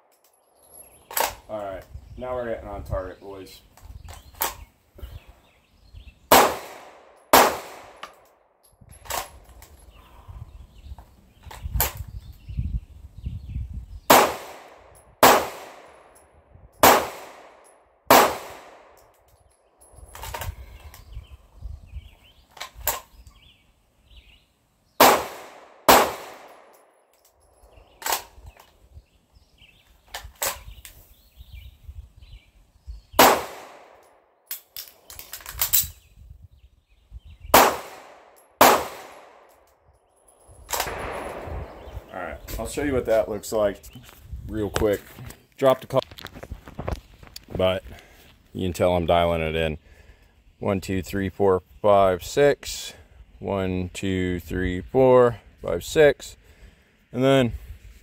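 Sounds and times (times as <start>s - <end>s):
pistol shots: 6.3s - 8.2s, 14.1s - 16.0s, 16.8s - 19.0s, 25.0s - 26.8s, 33.2s - 34.0s, 37.5s - 39.5s, 40.7s - 42.1s.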